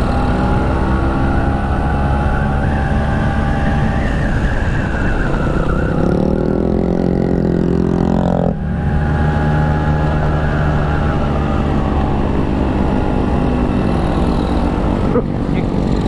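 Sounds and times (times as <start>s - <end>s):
scooter two-stroke engine running: 15.4s - 16.0s.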